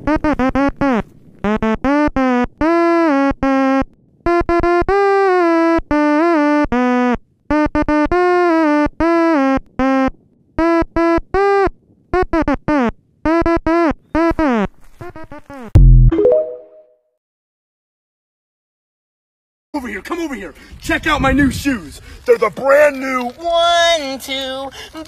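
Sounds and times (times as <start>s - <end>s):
synth playing melody: 15.8s - 17.0s.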